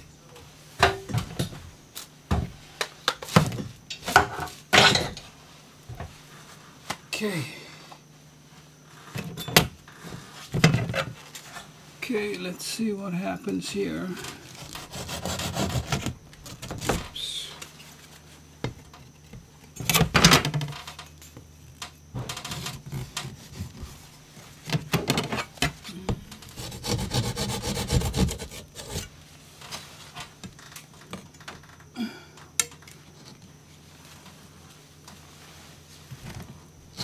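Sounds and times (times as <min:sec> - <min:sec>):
hand saw cutting drywall: 0:14.6 - 0:16.8, 0:26.5 - 0:29.1.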